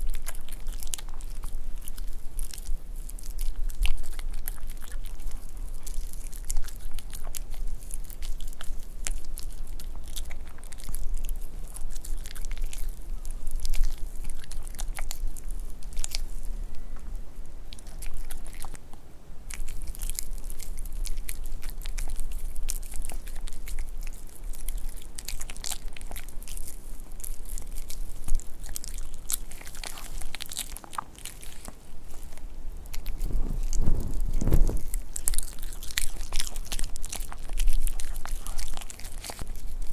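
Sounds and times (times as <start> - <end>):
dog chewing meat: 0.0 - 18.8, 19.5 - 39.9.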